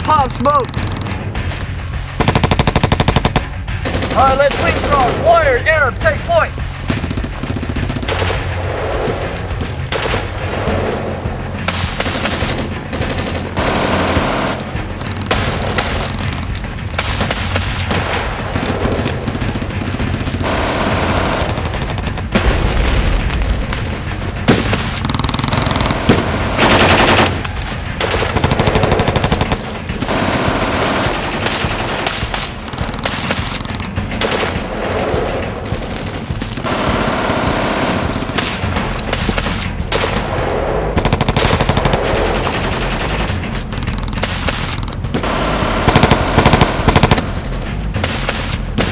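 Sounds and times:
music: 0.0 - 48.9
machine-gun bursts: 44.1 - 47.5.

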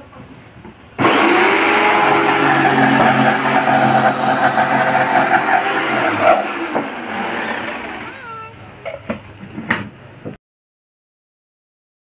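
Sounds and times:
power tool motor humming: 1.0 - 8.1.

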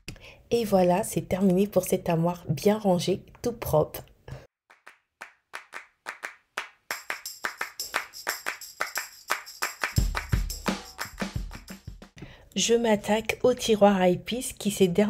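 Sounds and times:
rhythmic claps: 4.7 - 12.2
bass drum beat: 10.0 - 12.2.

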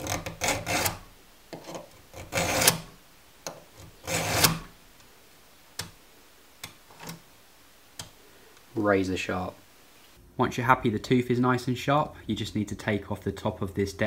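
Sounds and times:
file rasping on metal: 0.0 - 2.9, 3.8 - 4.7.

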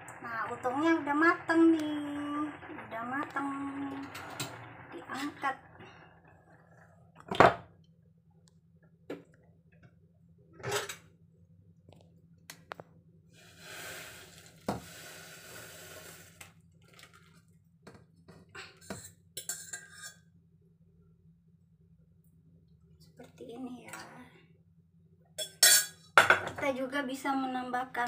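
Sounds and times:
broth pouring into a bowl: 13.4 - 17.2.

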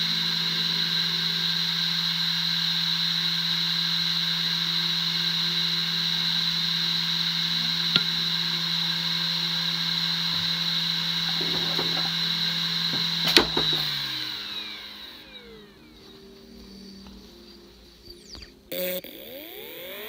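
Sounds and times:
hard drive hum and whine: 0.0 - 20.0
hard drive head click: 7.9 - 8.3, 11.2 - 12.2, 12.8 - 14.2.

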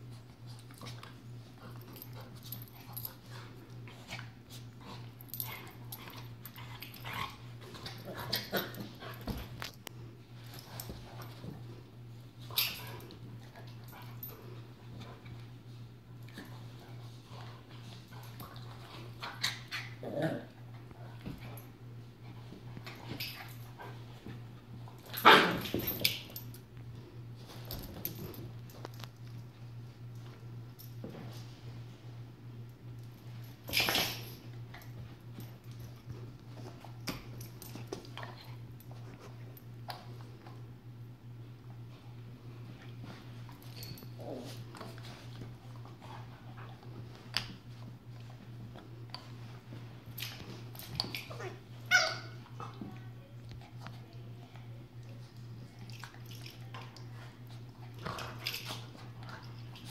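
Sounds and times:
dogs scuffling on carpet: 0.0 - 19.4, 41.7 - 51.8
dog play barks: 51.3 - 52.8.

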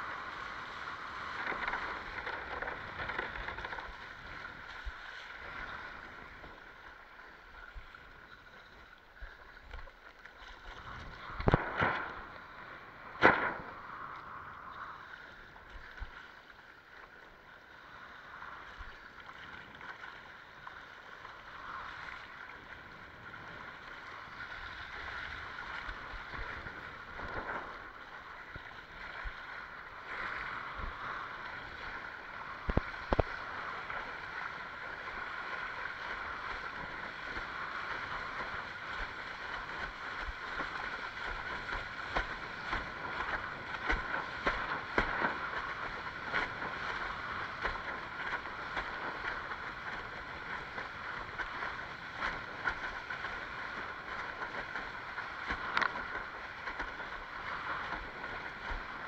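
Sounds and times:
water rushing along a hull: 0.0 - 59.0
wind on microphone: 10.8 - 15.1, 22.8 - 59.0.

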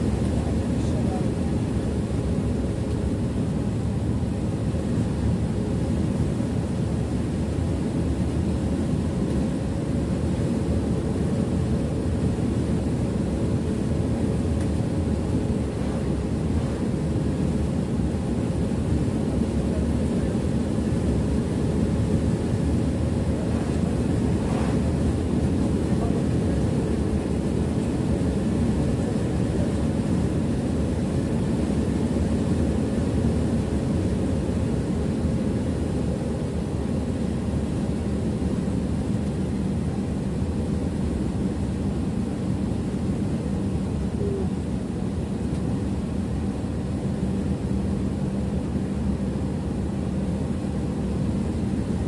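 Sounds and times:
bus engine and road drone: 0.0 - 52.0
bus engine and tyre hum: 21.4 - 26.6.

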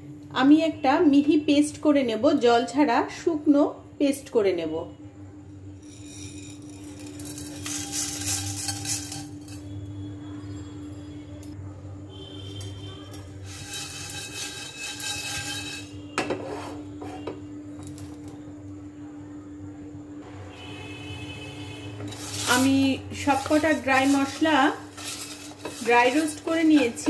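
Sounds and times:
spices rattling in a pot: 5.7 - 11.5, 12.4 - 16.3, 21.9 - 27.0.

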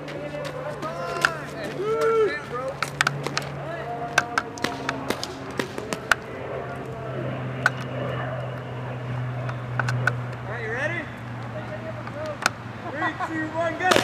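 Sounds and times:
low hum: 0.0 - 13.8
distant voices: 0.0 - 14.0
paintball markers firing: 2.8 - 3.5, 4.1 - 6.3, 9.4 - 10.4.

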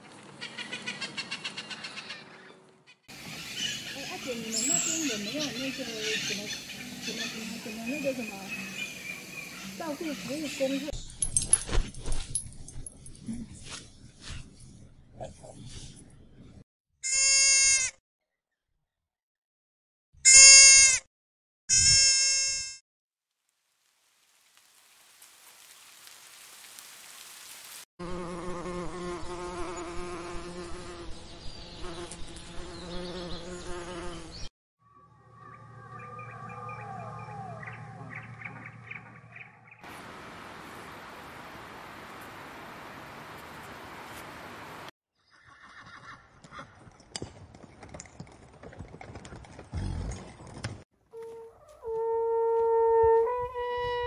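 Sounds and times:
steady hiss: 23.5 - 27.8
bees buzzing: 28.0 - 34.4.

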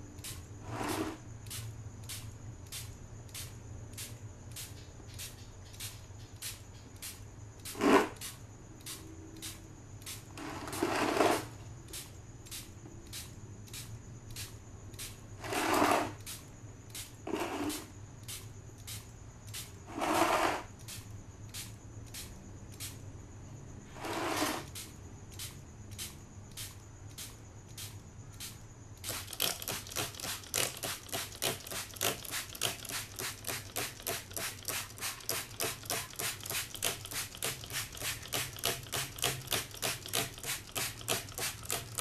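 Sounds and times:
air spray gun hissing: 0.6 - 1.2, 29.0 - 42.0.

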